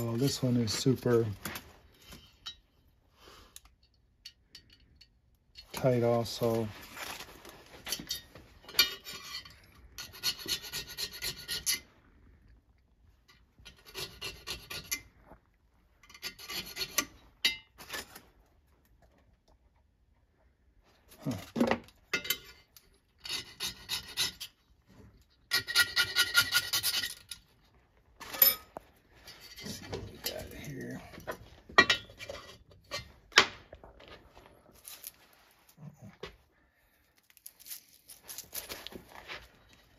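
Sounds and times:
hand file rasping on metal: 0:10.0 - 0:11.8, 0:13.6 - 0:15.1, 0:16.1 - 0:17.2, 0:23.2 - 0:24.6, 0:25.5 - 0:27.2.

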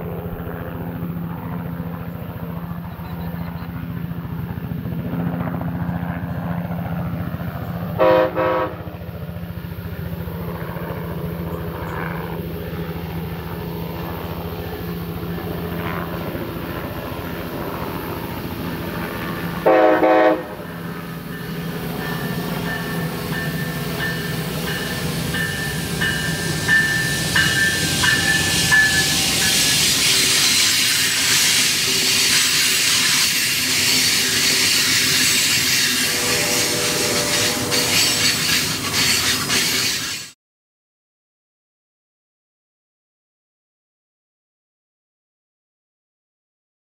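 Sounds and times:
train horn blasts: 0:08.0 - 0:08.9, 0:19.6 - 0:20.6, 0:35.7 - 0:38.4.

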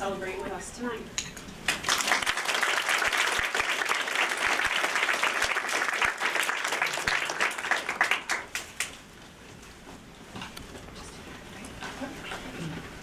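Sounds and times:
audience applauding: 0:01.7 - 0:09.0.

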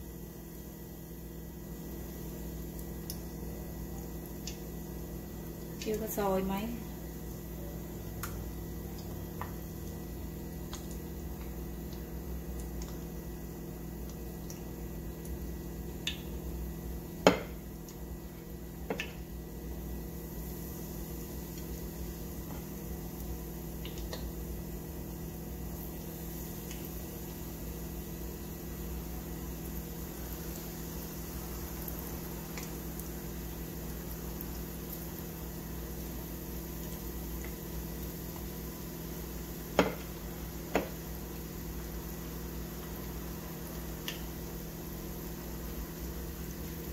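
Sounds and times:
oil bubbling and sizzling: 0:00.0 - 0:46.9
small ticks: 0:02.7 - 0:03.3, 0:04.4 - 0:04.7, 0:10.7 - 0:13.0, 0:14.0 - 0:15.4.

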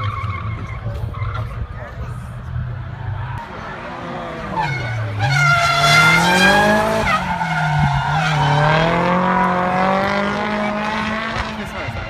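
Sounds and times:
tyres screeching: 0:02.8 - 0:11.6
car engine revving hard: 0:03.3 - 0:12.0.

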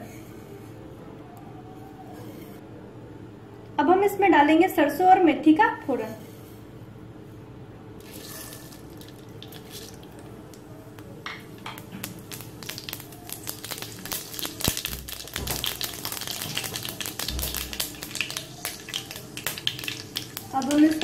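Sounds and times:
seeds sizzling in oil: 0:08.0 - 0:10.3, 0:11.6 - 0:21.0
mustard seeds crackling and popping: 0:08.0 - 0:21.0.

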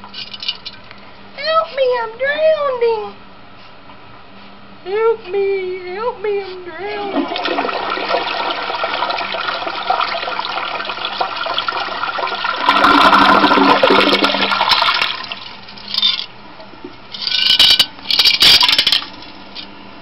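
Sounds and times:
toilet flushing: 0:07.0 - 0:15.6.

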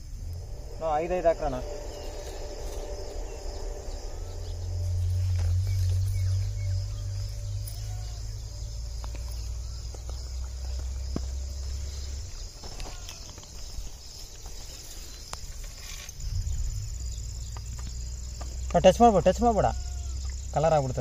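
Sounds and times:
low rumble: 0:00.0 - 0:12.6
insects chirring: 0:00.0 - 0:21.0.

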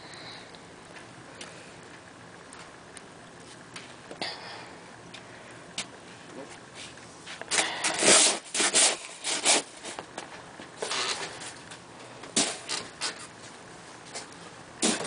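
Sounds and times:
snow shovel scraping concrete: 0:08.0 - 0:10.0.

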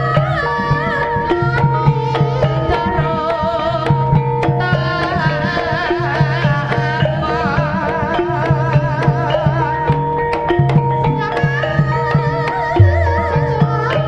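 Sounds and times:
metallophone tones: 0:00.0 - 0:14.0
wavering melody line: 0:00.0 - 0:14.0
drum strokes: 0:12.4 - 0:14.0
low gong tone: 0:12.8 - 0:14.0.

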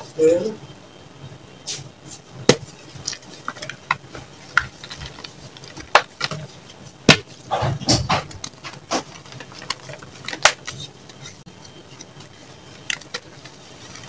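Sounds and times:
chalk blocks crunching: 0:02.5 - 0:07.5.

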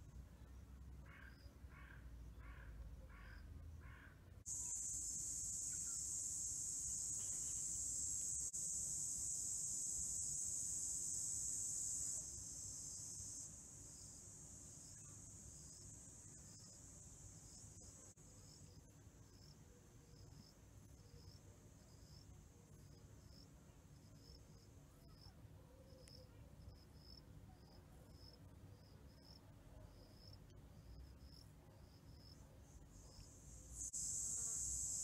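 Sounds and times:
cricket chirping: 0:00.0 - 0:35.0
high steady hiss: 0:04.4 - 0:24.8, 0:32.6 - 0:35.0.

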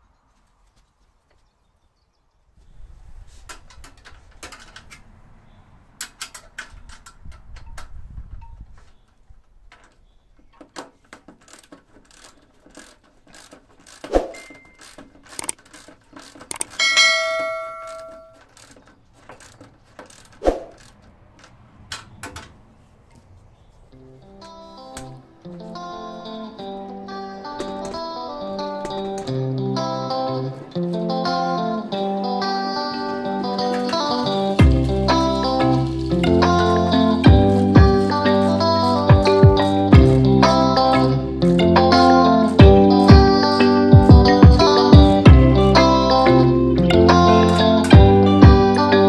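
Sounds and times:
metal clicks and clinks: 0:10.8 - 0:22.5
metal part ringing: 0:14.3 - 0:15.6, 0:16.3 - 0:18.8.

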